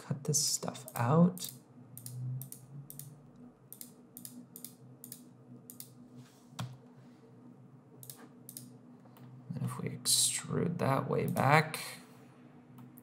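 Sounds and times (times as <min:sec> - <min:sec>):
faint steady hum: 0:00.0 - 0:13.0
computer mouse clicking: 0:00.8 - 0:06.0, 0:08.0 - 0:09.3.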